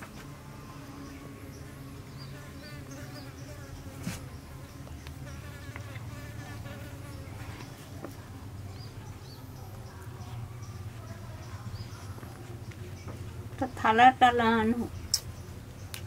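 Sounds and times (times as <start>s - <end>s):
insect buzz: 0.7s - 7.4s.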